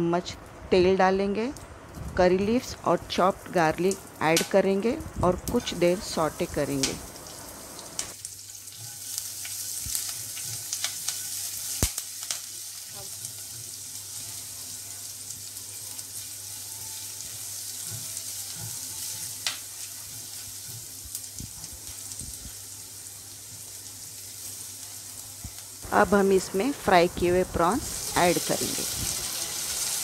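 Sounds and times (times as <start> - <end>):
garlic sizzling in hot oil: 2.5 - 30.0
spatula stirring in a pan: 8.4 - 25.2.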